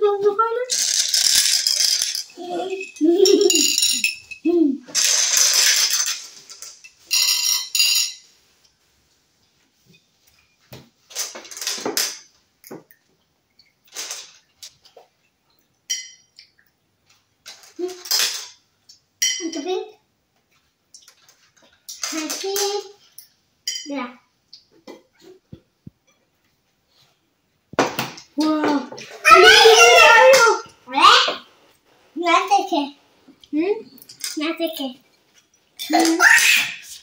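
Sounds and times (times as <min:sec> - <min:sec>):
child's voice: 0:00.0 - 0:00.8, 0:02.3 - 0:03.6, 0:04.4 - 0:04.9, 0:22.1 - 0:23.0, 0:28.4 - 0:31.5, 0:32.2 - 0:35.0, 0:35.8 - 0:36.8
candies rattling against ceramic bowl: 0:00.7 - 0:08.2.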